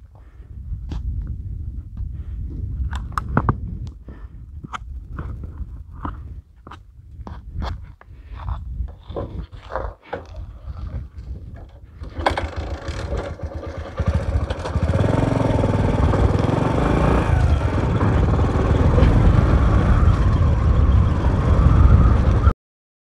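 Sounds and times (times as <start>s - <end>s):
motorcycle engine revving: 12.0s - 22.5s.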